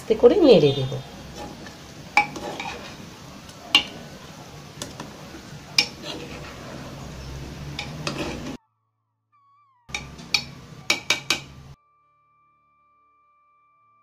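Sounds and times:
ladle clinking metal pot: 0:01.2 - 0:04.1, 0:04.8 - 0:08.6, 0:09.9 - 0:11.6
ladle scraping rice: 0:01.2 - 0:04.2, 0:04.8 - 0:08.6.

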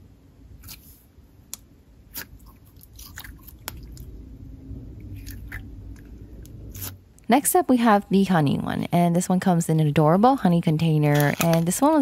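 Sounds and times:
slime squishing with sticky clicks: 0:01.5 - 0:04.1.

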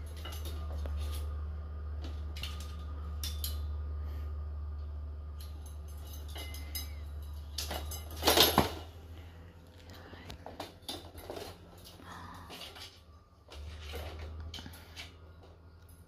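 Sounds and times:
kitten claws tapping on metal rods: 0:00.0 - 0:01.4, 0:02.0 - 0:03.9, 0:04.8 - 0:08.8
steady low hum: 0:00.0 - 0:16.0.

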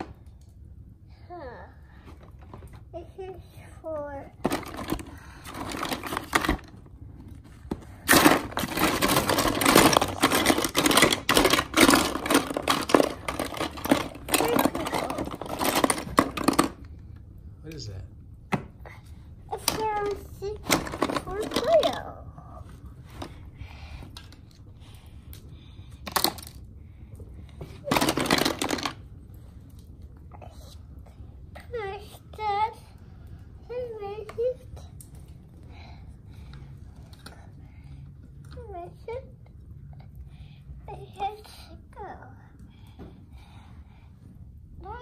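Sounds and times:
plastic tubs and tools rattling: 0:04.4 - 0:06.8, 0:07.7 - 0:16.9, 0:19.5 - 0:22.0, 0:26.1 - 0:26.6, 0:27.6 - 0:29.0.

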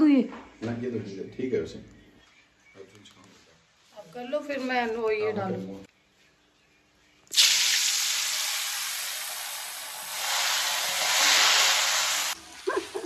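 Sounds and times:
food deep-frying in oil: 0:07.3 - 0:12.8.

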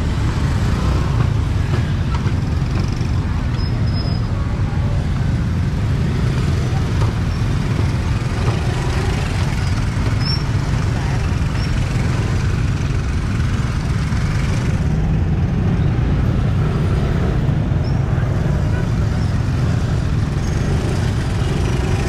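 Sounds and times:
motorbike traffic rumble: 0:00.0 - 0:22.0
people talking: 0:01.7 - 0:07.9, 0:17.8 - 0:20.0.

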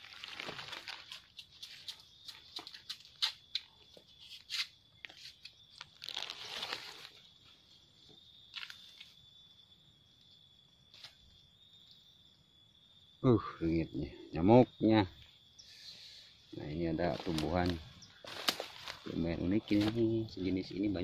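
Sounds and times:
footsteps crunching dry leaves: 0:00.0 - 0:02.8, 0:05.8 - 0:07.2, 0:17.0 - 0:20.2
high insect whine: 0:00.0 - 0:21.0
brushing through undergrowth: 0:04.3 - 0:07.2, 0:16.9 - 0:20.2.

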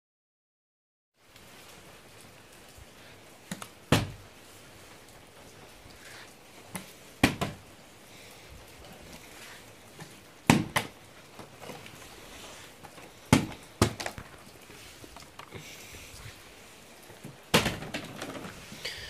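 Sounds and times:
plastic bottle thudding on floor: 0:03.5 - 0:04.2, 0:07.2 - 0:07.6, 0:10.5 - 0:10.9, 0:13.3 - 0:14.4, 0:17.5 - 0:18.5.

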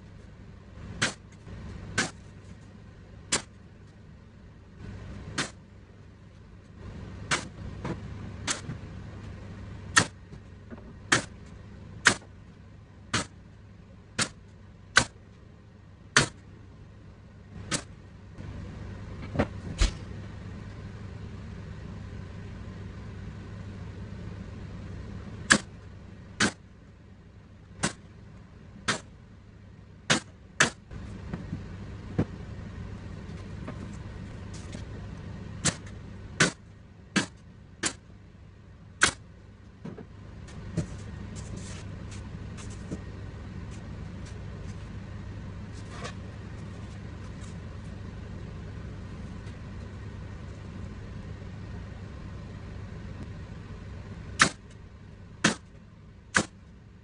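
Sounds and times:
low machine hum: 0:00.0 - 0:57.0
nail gun firing: 0:02.0 - 0:02.2, 0:12.0 - 0:12.2, 0:25.5 - 0:25.7, 0:26.4 - 0:26.6, 0:35.6 - 0:36.6, 0:39.0 - 0:39.2, 0:54.4 - 0:54.6, 0:55.4 - 0:55.7, 0:56.3 - 0:56.6.

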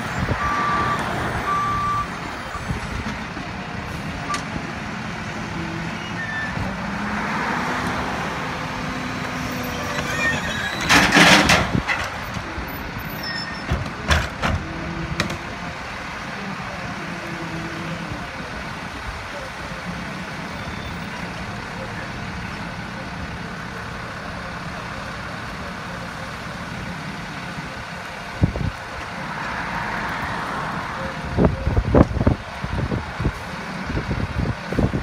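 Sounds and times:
garbage truck engine running: 0:00.0 - 0:29.3
reversing beeps: 0:00.4 - 0:02.7
dumpster banging: 0:10.0 - 0:12.3.

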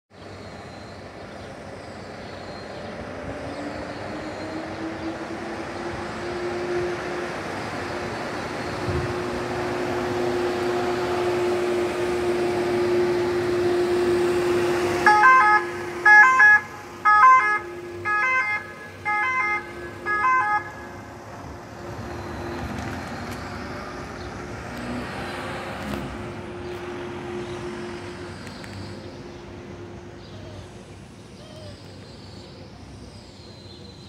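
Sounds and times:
ambulance engine humming: 0:00.1 - 0:34.0
two-tone siren blasts: 0:03.8 - 0:21.2.

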